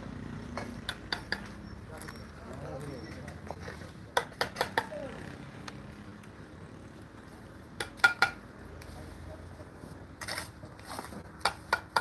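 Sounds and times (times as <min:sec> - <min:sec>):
trowel tapping bricks: 0:00.6 - 0:01.6, 0:04.1 - 0:04.9, 0:07.8 - 0:08.4, 0:11.1 - 0:12.0.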